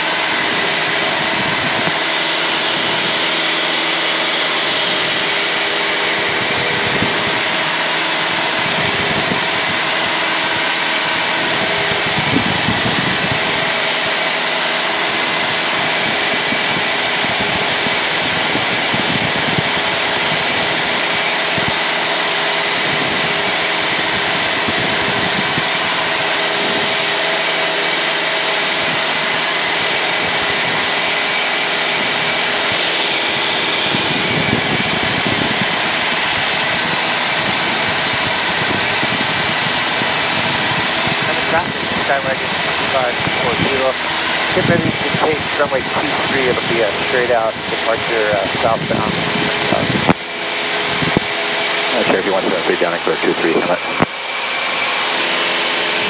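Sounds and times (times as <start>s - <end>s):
small plane engine drone: 0.0s - 56.0s
intercom hiss: 41.0s - 50.2s, 51.9s - 54.2s.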